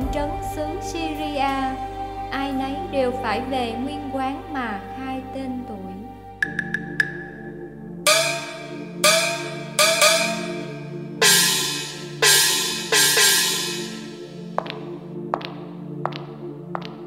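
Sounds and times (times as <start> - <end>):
low musical drone: 0.0 - 17.0
metal percussion crashes: 8.1 - 14.4.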